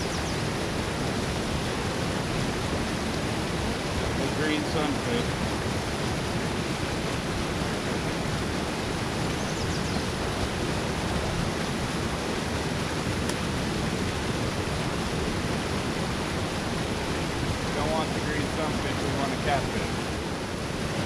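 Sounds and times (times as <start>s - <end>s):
water rushing through spillway: 0.0s - 21.0s.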